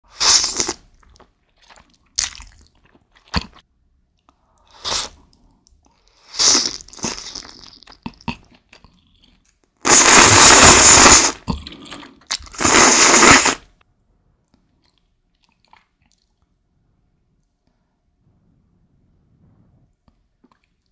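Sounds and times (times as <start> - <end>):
noodle slurping: 0.1 - 3.6, 4.6 - 5.4, 6.0 - 8.6, 9.8 - 13.7
wet chewing and biting: 0.1 - 3.6, 14.5 - 16.5.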